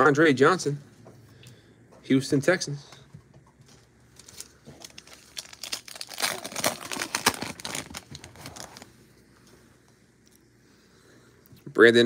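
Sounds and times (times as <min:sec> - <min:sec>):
foil wrapper crinkling: 0:04.1 - 0:08.9.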